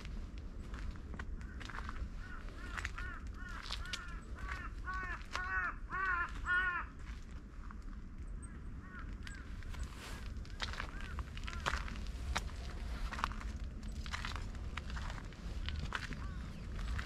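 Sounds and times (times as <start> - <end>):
footsteps on forest trail: 0.0 - 8.0, 8.9 - 17.0
crow cawing: 1.4 - 7.2, 8.7 - 9.7, 10.5 - 12.0, 15.7 - 17.0.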